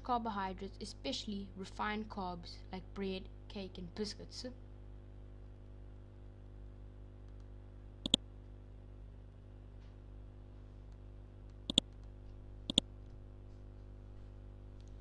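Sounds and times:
low steady hum: 0.0s - 15.0s
computer mouse clicks: 7.3s - 8.2s, 10.9s - 12.1s, 12.7s - 12.9s.

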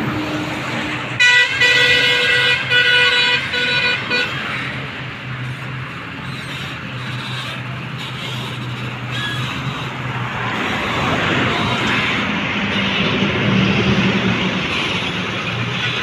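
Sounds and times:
truck engine running: 0.0s - 16.0s
vehicle horn tooting: 1.2s - 4.6s.

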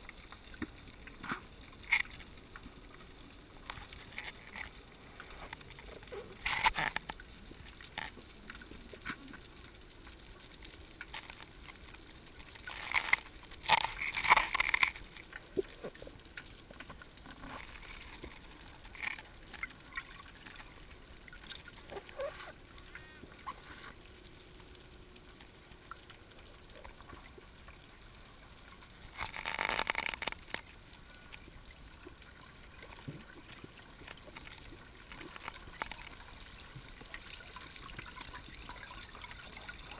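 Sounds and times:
bubbling gurgles: 0.0s - 39.9s
faint underwater hiss: 0.0s - 39.9s
small clicks: 0.1s - 20.7s, 28.8s - 31.4s, 32.0s - 39.9s.

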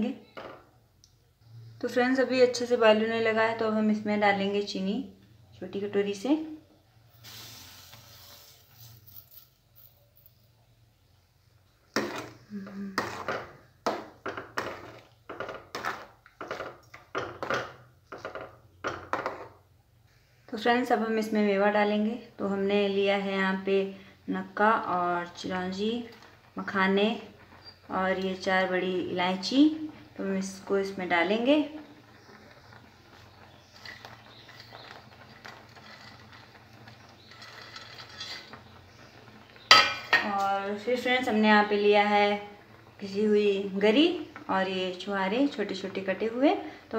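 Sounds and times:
metal ladle scraping pan: 11.9s - 19.6s, 30.8s - 40.3s.

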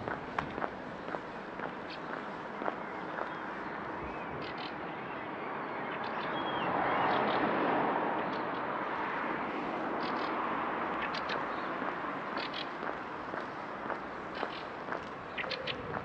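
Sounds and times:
steady rush of street noise: 0.0s - 16.0s.

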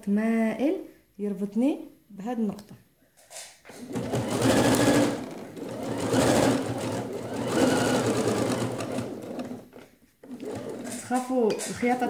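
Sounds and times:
sewing machine stitching: 3.7s - 12.0s.

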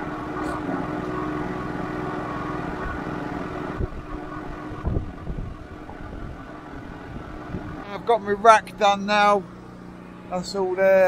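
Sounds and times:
wind buffeting microphone: 2.4s - 8.4s
wind thumps on microphone: 3.7s - 7.8s.

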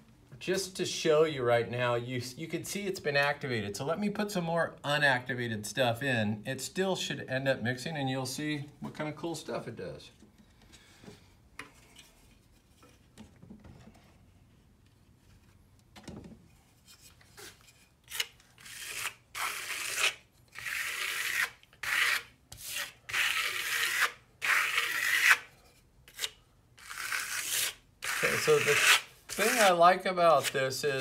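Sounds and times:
trowel scraping plaster: 17.0s - 25.5s, 26.1s - 31.0s.

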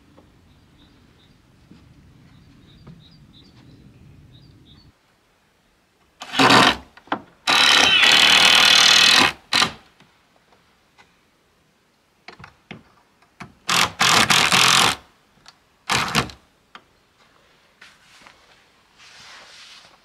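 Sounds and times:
cordless drill driving screws: 6.2s - 6.8s, 7.5s - 9.8s.

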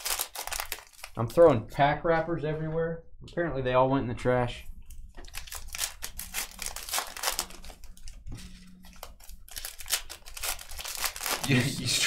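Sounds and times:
wrappers crinkling and tearing: 0.0s - 1.5s, 5.2s - 12.0s.

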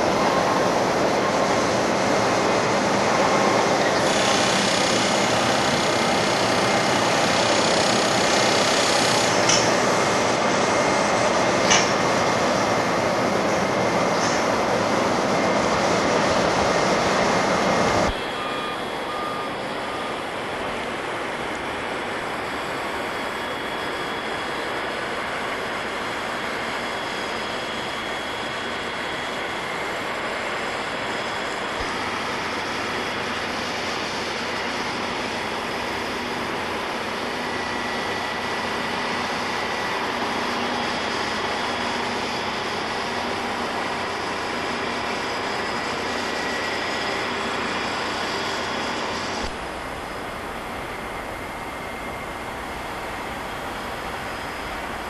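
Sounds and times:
short beeps: 18.1s - 20.2s.

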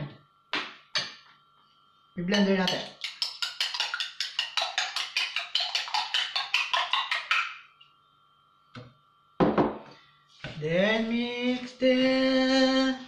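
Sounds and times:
egg beaten in ceramic bowl: 2.3s - 7.6s.

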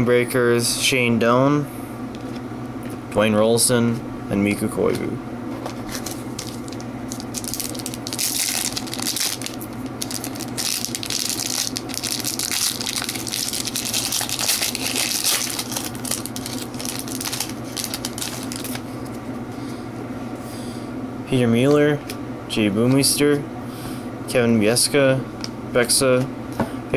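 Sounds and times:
cards pulled from pack: 5.7s - 19.2s
foil wrapper crinkling: 5.7s - 19.2s.

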